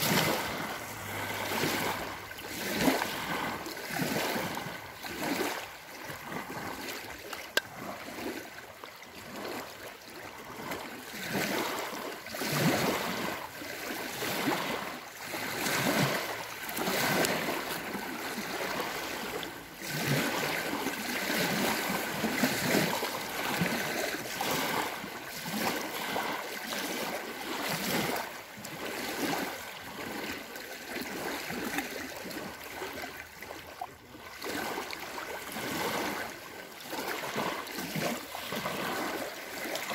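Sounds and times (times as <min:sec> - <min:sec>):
small waves lapping on shore: 0:00.0 - 0:39.9.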